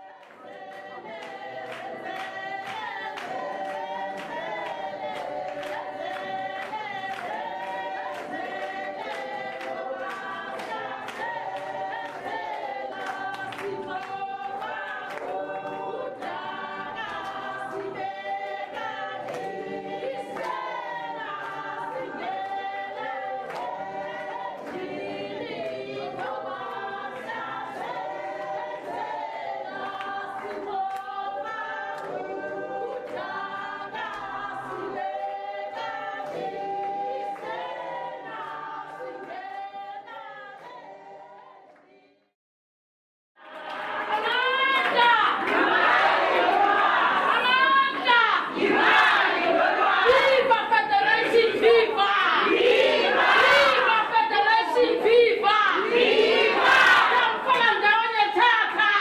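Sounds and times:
choir singing in harmony: 0.0s - 42.3s, 43.4s - 59.0s.

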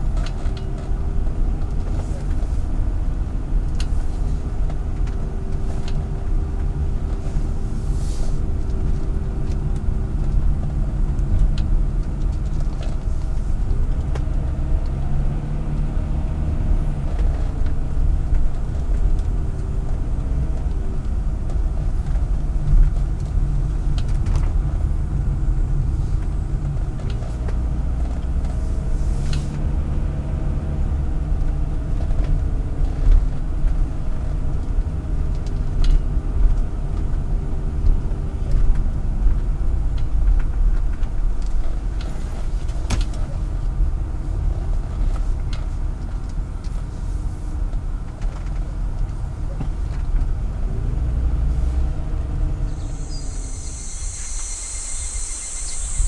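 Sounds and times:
car engine and tyres rumble: 0.0s - 56.0s
bird chirps: 52.7s - 56.0s
high insect buzz: 52.8s - 56.0s.

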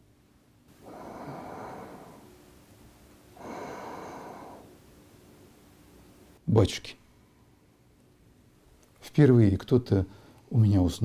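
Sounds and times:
woman snoring: 0.8s - 2.3s, 3.4s - 4.7s.

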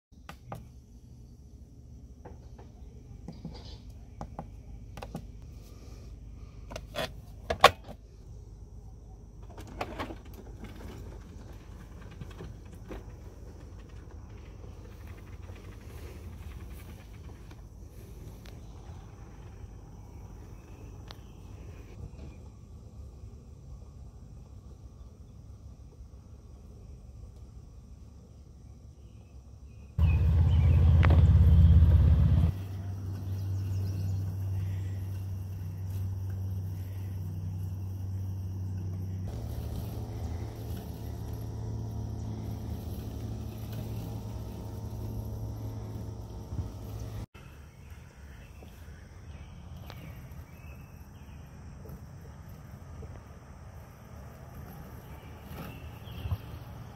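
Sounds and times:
faint outdoor background: 0.1s - 56.9s
robot lawn mower rumble: 5.5s - 22.0s, 30.0s - 56.9s.

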